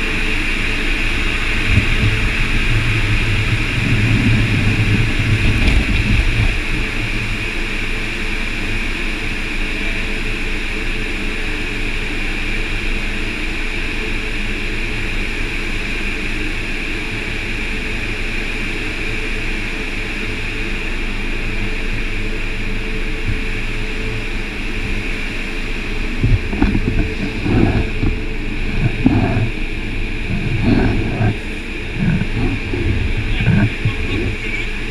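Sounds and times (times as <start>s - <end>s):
car wash brushes whirring: 0.0s - 8.2s, 22.7s - 34.9s
low rumble: 1.0s - 8.0s, 23.2s - 34.9s.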